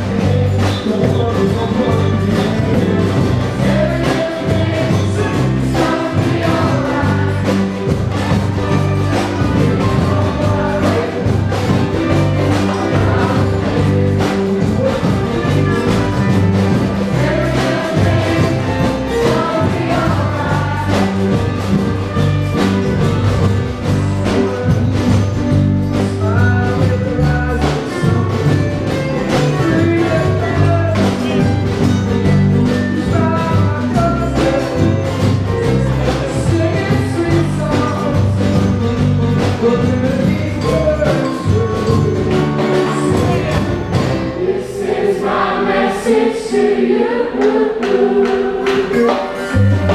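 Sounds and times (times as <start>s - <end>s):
samba drumming: 0.0s - 49.9s
group of young singers: 2.0s - 15.2s, 16.6s - 22.0s, 41.2s - 49.9s.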